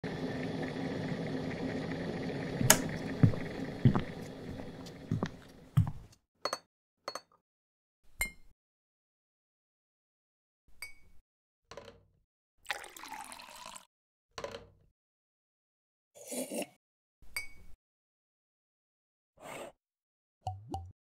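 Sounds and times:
electric kettle heating: 0:00.0 - 0:06.0
kettle clicks and knocks: 0:02.4 - 0:06.0.

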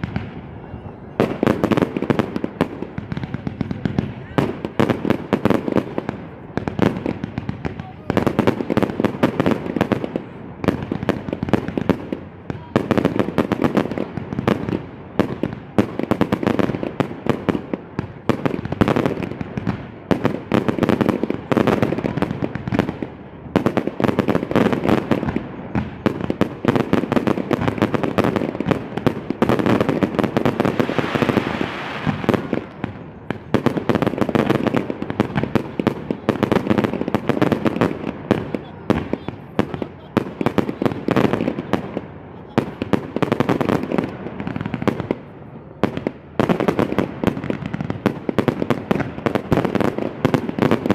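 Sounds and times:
fireworks bursting and crackling: 0:00.0 - 0:50.9.

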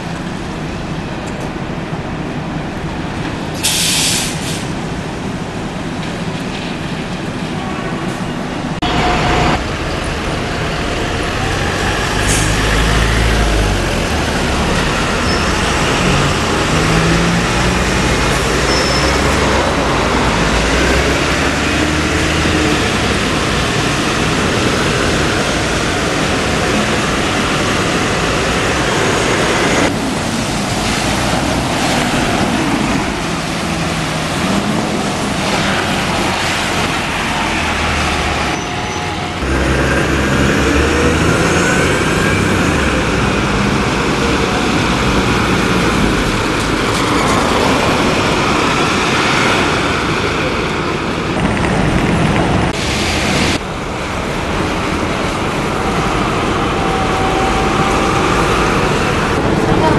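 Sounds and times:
buses passing on wet road: 0:00.0 - 0:59.9
air brakes hissing: 0:03.6 - 0:04.8.

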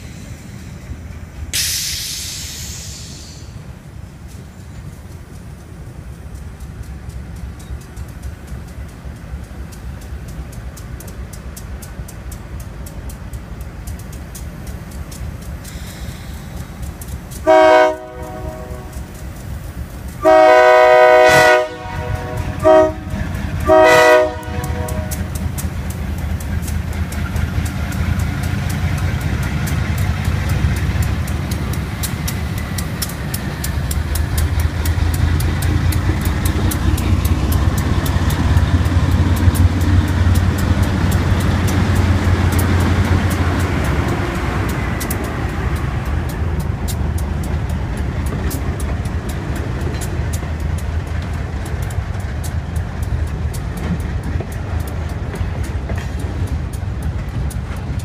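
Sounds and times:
diesel locomotive engine: 0:00.0 - 0:58.0
train wheels on rails: 0:00.0 - 0:58.0
locomotive air horn blasts: 0:17.4 - 0:19.1, 0:20.2 - 0:25.4.

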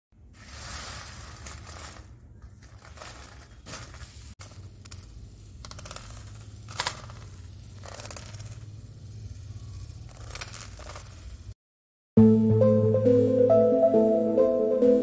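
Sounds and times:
crisp snack crackling and rustling: 0:00.3 - 0:11.6.

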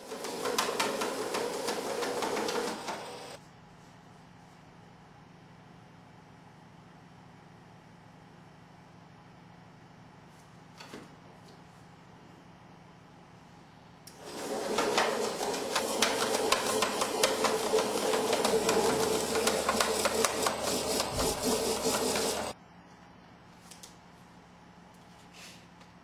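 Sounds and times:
letter-opening machine whirring: 0:00.0 - 0:03.4, 0:14.1 - 0:22.6.

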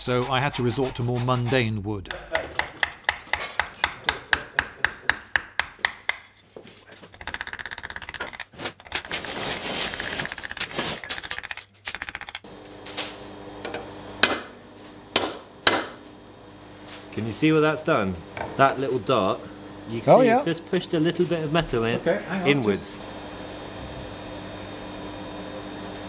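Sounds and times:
hand tool scraping wood: 0:00.0 - 0:03.2, 0:08.1 - 0:11.6.

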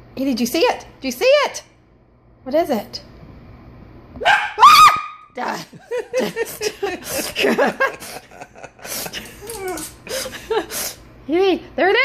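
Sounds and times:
high-pitched cry: 0:04.2 - 0:05.3, 0:09.4 - 0:10.0
quick breathy laughter: 0:06.3 - 0:11.0.

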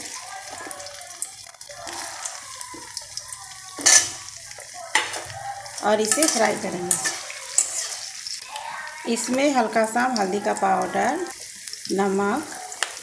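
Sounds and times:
paneer sizzling in hot oil: 0:00.0 - 0:13.0
metal spatula clattering on pan: 0:03.8 - 0:08.1.

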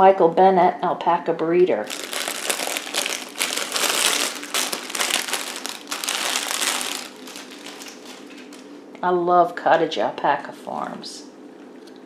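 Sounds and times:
plastic bag crinkling: 0:01.8 - 0:08.8.

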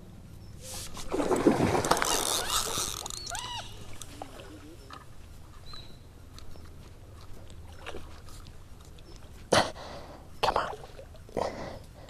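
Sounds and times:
fish splashing in water: 0:00.7 - 0:05.1.

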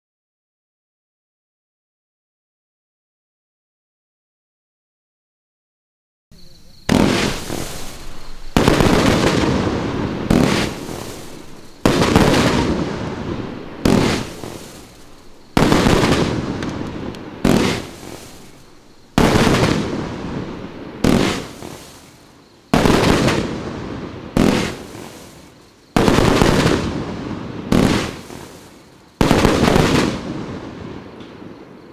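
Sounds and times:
fireworks shots bursting: 0:06.6 - 0:31.5.

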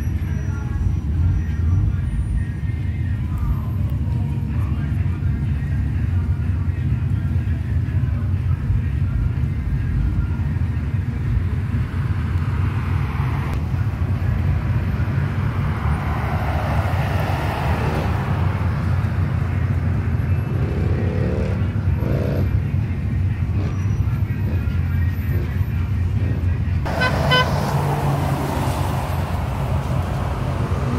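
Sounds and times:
cars cruising engine rumble: 0:00.0 - 0:30.9
vehicles passing: 0:00.0 - 0:30.9
engine revving: 0:15.2 - 0:22.8, 0:23.4 - 0:30.9.

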